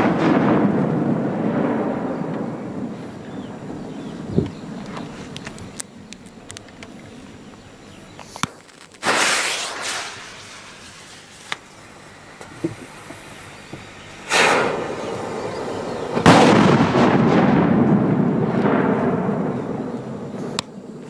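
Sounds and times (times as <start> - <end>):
large firecrackers exploding: 0.0 - 6.5, 8.2 - 21.0
long rolling echo: 0.0 - 7.8, 9.0 - 21.0
small cracks: 4.9 - 7.0, 8.2 - 9.1.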